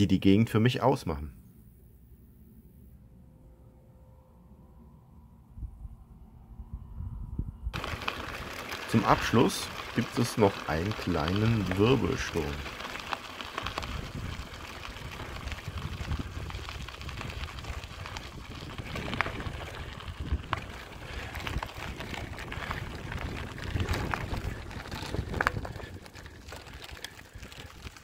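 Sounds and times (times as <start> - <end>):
gusty wind buffeting microphone: 5.5 - 28.0
scattered crackles: 7.8 - 28.0.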